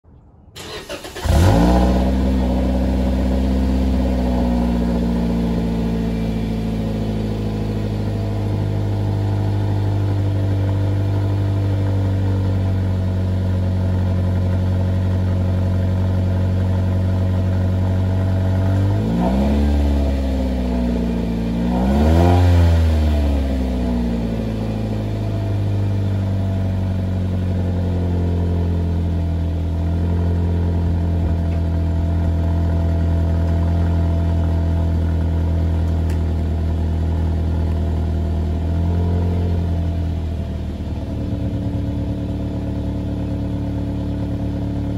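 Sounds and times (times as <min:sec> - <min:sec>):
engine revving: 0:00.6 - 0:12.9, 0:17.2 - 0:29.1
car engine starting and idling: 0:00.6 - 0:44.9.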